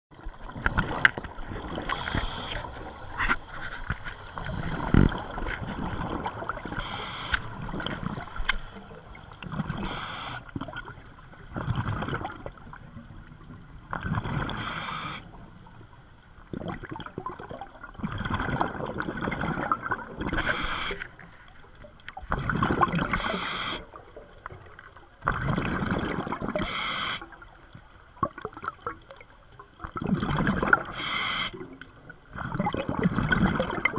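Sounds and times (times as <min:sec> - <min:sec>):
exhaled bubbles: 0:00.1 - 0:15.2, 0:16.5 - 0:21.0, 0:22.1 - 0:24.0, 0:25.2 - 0:26.9, 0:28.2 - 0:33.9
regulator hissing inhale: 0:01.9 - 0:02.7, 0:06.8 - 0:07.4, 0:09.8 - 0:10.5, 0:14.6 - 0:15.3, 0:20.4 - 0:21.4, 0:23.2 - 0:23.9, 0:26.6 - 0:27.2, 0:30.9 - 0:31.6.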